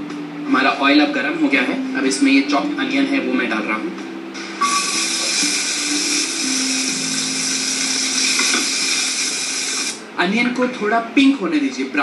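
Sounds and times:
onions sizzling in oil: 4.6 - 10.0.

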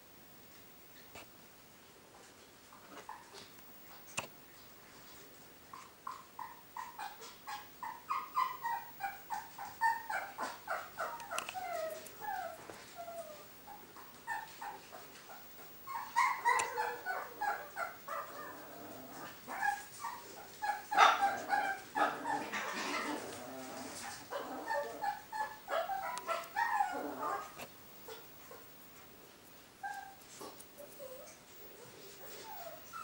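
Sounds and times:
puppy yipping and whimpering: 5.8 - 28.6, 29.8 - 30.2, 30.8 - 33.0.

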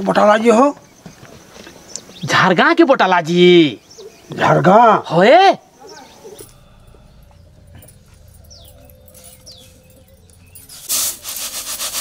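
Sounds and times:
faint high bird chirps: 5.7 - 10.9
loud noisy rustling burst: 10.6 - 12.0.

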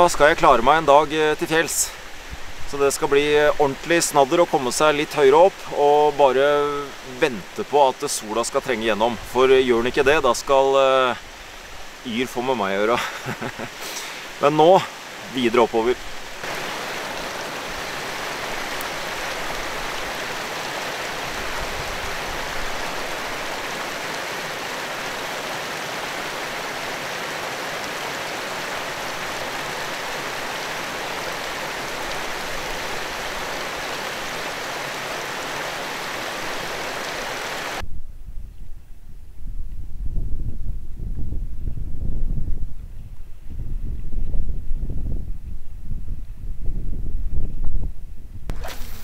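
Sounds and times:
wind rumbling on microphone: 0.0 - 4.0, 15.9 - 34.7, 35.3 - 49.0
stream running over rocks: 0.0 - 37.8, 48.5 - 49.0.

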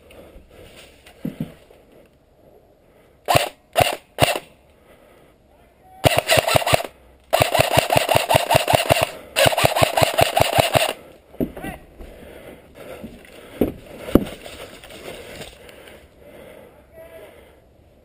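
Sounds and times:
airsoft rifle automatic fire: 3.3 - 4.5, 6.0 - 11.0.

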